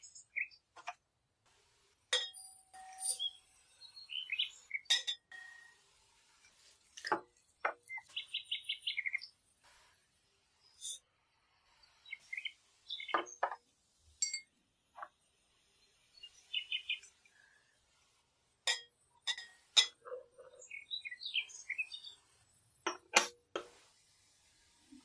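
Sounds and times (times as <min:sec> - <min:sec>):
birds chirping faintly: 0:00.0 - 0:01.1, 0:02.1 - 0:25.0
metal spoon tapping glass jug: 0:02.2 - 0:03.3, 0:14.2 - 0:14.5.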